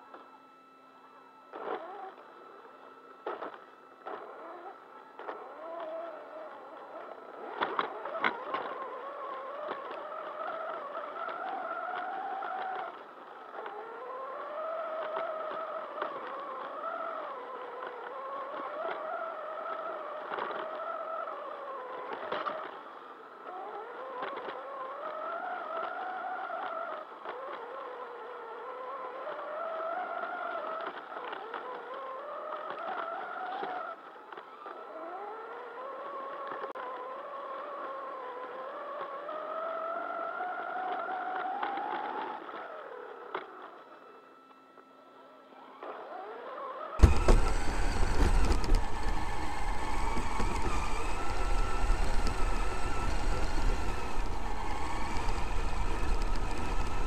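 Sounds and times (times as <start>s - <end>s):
rc car drivetrain whining: 0.0s - 57.0s
car bouncing knocks: 47.0s - 52.9s.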